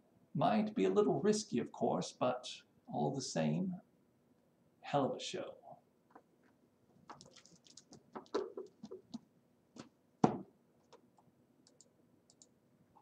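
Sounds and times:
paper rustling: 7.0s - 9.2s
small clicks: 10.8s - 12.6s.

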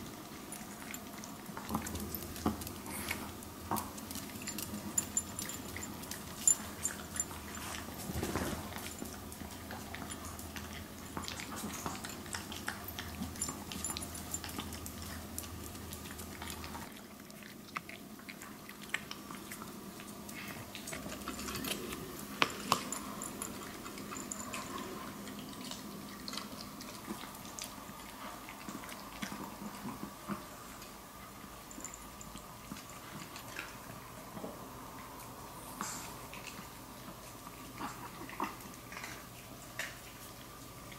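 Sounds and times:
dogs crunching dry kibble: 0.0s - 34.4s
kibble clicking against bowls: 0.5s - 7.9s.

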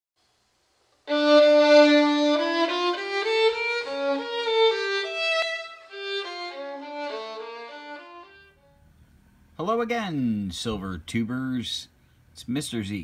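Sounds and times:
solo violin melody: 1.0s - 8.7s.

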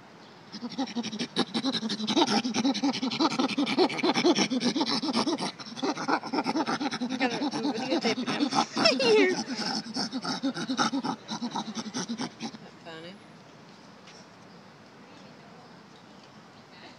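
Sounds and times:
chimpanzee screaming calls: 0.6s - 12.6s.

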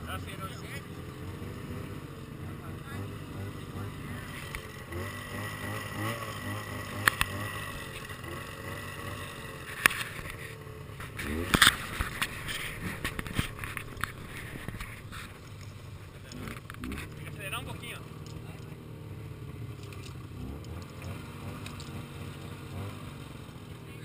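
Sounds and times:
snowmobile engines idling: 0.0s - 24.0s
sharp clicks: 7.0s - 7.3s, 19.7s - 22.0s.

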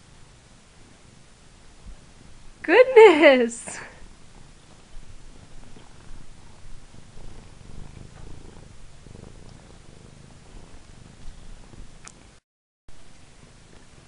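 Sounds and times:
cat purring: 0.2s - 2.6s, 3.7s - 12.4s.

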